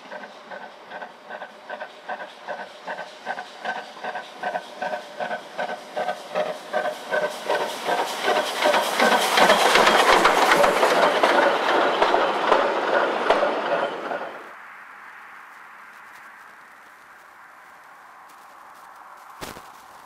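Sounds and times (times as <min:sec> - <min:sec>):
steam locomotive exhaust beats: 0:00.0 - 0:14.6
train rattling over rail joints: 0:00.0 - 0:14.6.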